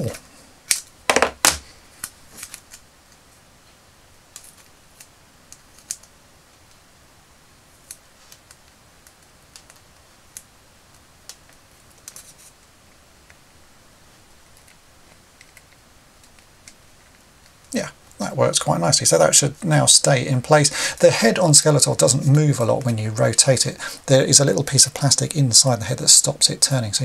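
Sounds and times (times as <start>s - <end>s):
insulation tape crackling: 0.0s - 27.0s.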